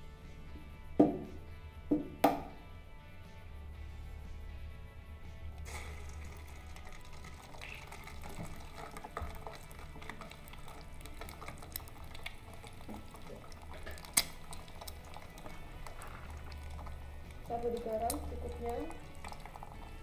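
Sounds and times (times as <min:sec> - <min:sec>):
egg sizzling in frying pan: 0:05.6 - 0:20.0.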